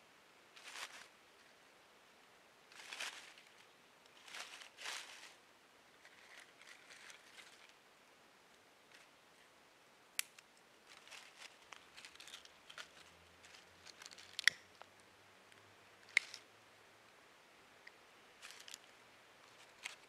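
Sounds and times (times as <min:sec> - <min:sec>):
dry leaves and twigs rustling: 0:00.5 - 0:01.7, 0:02.6 - 0:07.9, 0:08.8 - 0:09.6, 0:10.2 - 0:16.5, 0:18.3 - 0:20.0.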